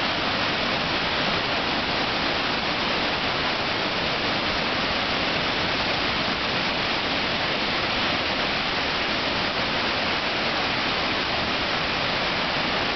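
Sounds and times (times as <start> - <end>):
waterfall rushing: 0.0 - 12.9.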